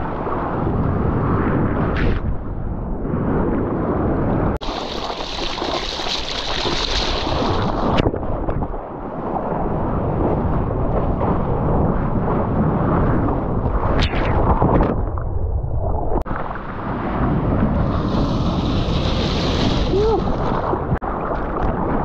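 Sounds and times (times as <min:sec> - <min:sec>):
wind buffeting microphone: 0:00.0 - 0:05.7, 0:06.8 - 0:22.0
seawater rushing and splashing: 0:04.6 - 0:11.4, 0:16.1 - 0:22.0.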